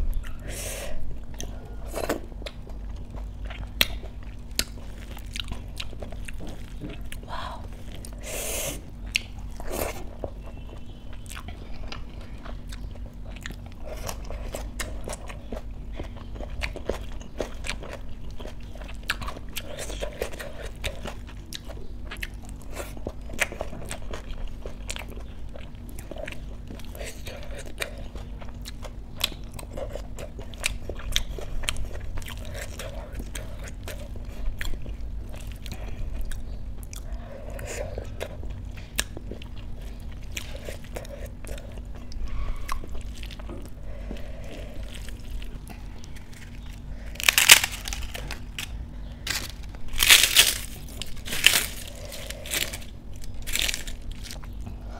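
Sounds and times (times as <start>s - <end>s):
chewing and mouth sounds: 0.0s - 54.9s
crisp wafers snapping: 46.0s - 54.6s.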